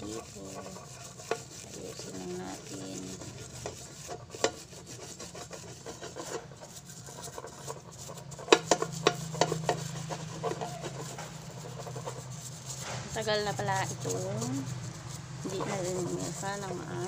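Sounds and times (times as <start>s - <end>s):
frying pan scraping on floor: 0.0s - 17.0s
steady low hum: 0.0s - 17.0s
pan knocking: 7.4s - 12.0s.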